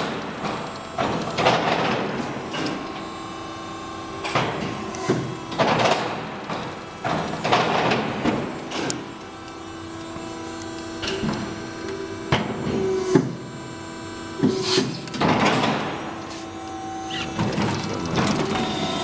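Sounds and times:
steady hum: 0:00.0 - 0:19.0
knocks clunks and rattles: 0:04.3 - 0:08.9.

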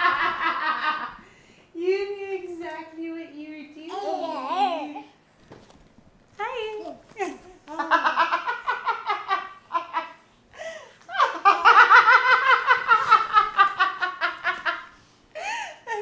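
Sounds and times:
woman laughing heartily: 0:07.7 - 0:16.0.

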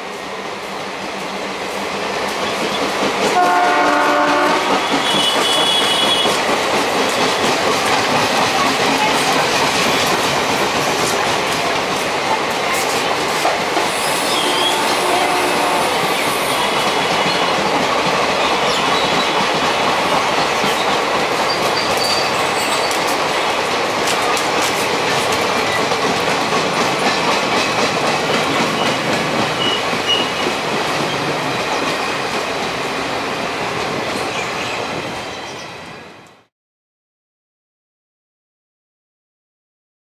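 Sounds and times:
train wheels clattering over rail joints: 0:02.0 - 0:14.6, 0:16.0 - 0:32.8.

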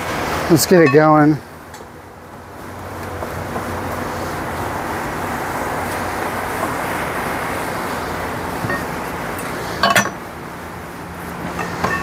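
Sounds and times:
traffic noise: 0:00.0 - 0:12.0
metal bar clanking on wheel: 0:08.6 - 0:10.2, 0:11.5 - 0:12.0.

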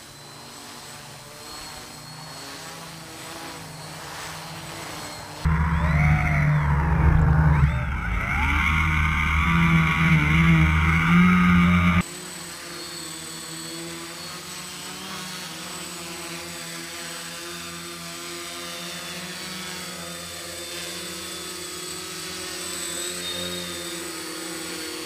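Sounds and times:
drone propellers buzzing: 0:00.0 - 0:12.8.

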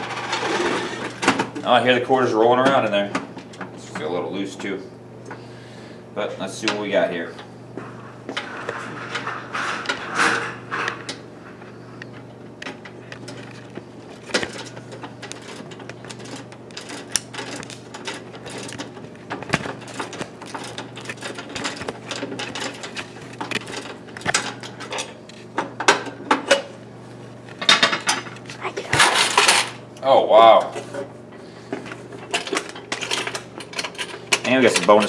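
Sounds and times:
steady low hum: 0:00.0 - 0:35.0
key working in a lock: 0:13.0 - 0:19.0
coins rattling in a drawer: 0:14.3 - 0:18.9, 0:29.0 - 0:29.8.

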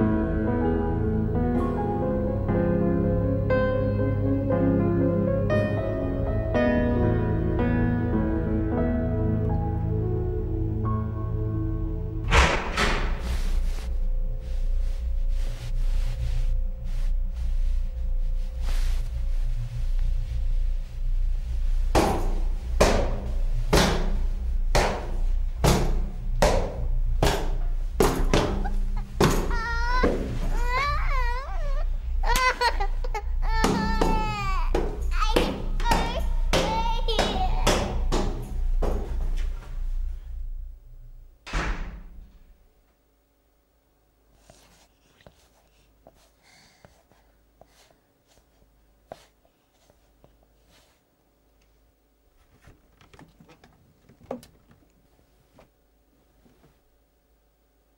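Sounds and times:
low droning music: 0:00.0 - 0:41.4
faint soft rustles: 0:13.1 - 0:25.6, 0:44.3 - 0:57.0
heavy echoing footsteps: 0:18.8 - 0:39.8
child whimpering and sobbing: 0:28.3 - 0:38.1.

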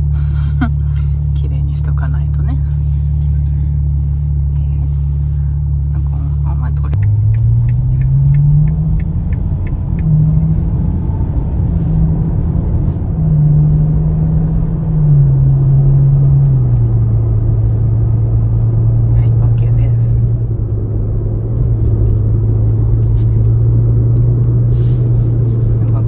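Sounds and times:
car engine from inside cabin: 0:00.0 - 0:26.0
light evenly spaced ticks: 0:06.9 - 0:10.3.

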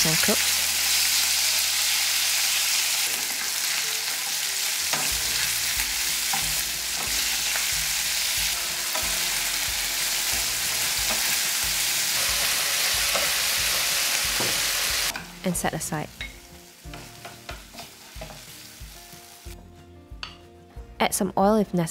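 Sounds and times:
chicken sizzling in a frying pan: 0:00.0 - 0:15.2.

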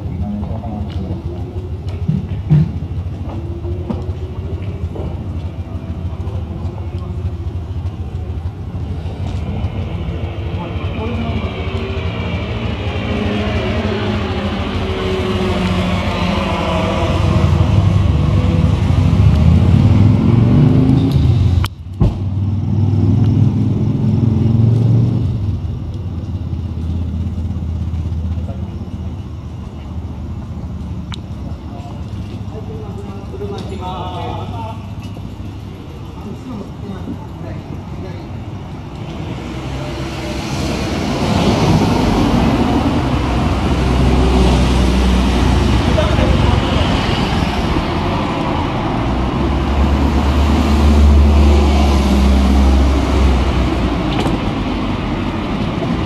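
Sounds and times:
cars and vans passing: 0:00.0 - 0:56.0
vehicle speeding up: 0:06.0 - 0:28.4, 0:38.9 - 0:56.0.

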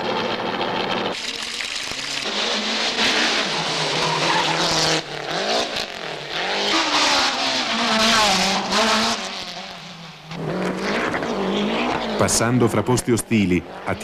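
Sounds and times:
rally car engines revving: 0:01.8 - 0:14.0
tyre squeal on tarmac: 0:02.2 - 0:05.6.

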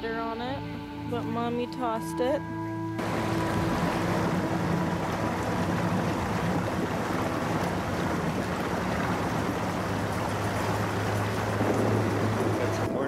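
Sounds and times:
vehicle engine hum: 0:02.8 - 0:13.0
water splashing: 0:03.0 - 0:13.0.

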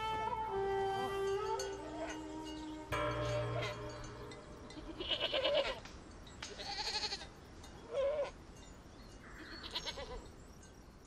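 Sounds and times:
young goats bleating: 0:04.7 - 0:05.9, 0:06.5 - 0:07.3, 0:09.4 - 0:10.3.

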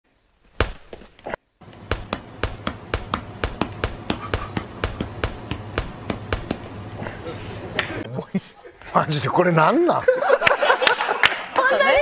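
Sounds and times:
low steady hum: 0:00.1 - 0:09.0
fast sharp taps: 0:01.6 - 0:06.7.

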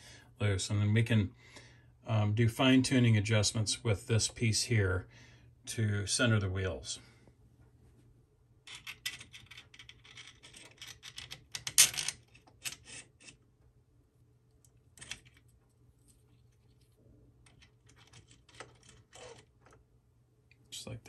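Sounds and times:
metal parts clicking and scraping: 0:08.7 - 0:13.4, 0:15.0 - 0:15.5, 0:16.4 - 0:19.8.

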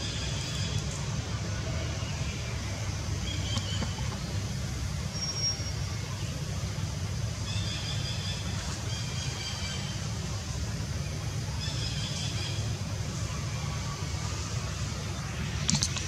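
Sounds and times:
low outdoor rumble: 0:00.0 - 0:16.0.

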